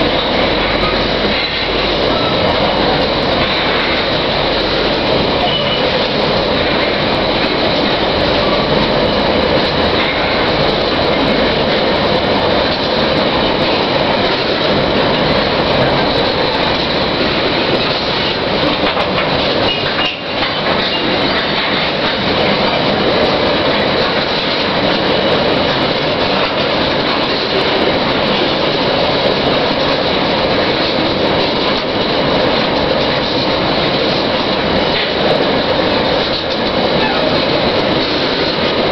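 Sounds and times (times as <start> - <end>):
train wheels rumbling on rails: 0.0 - 38.9.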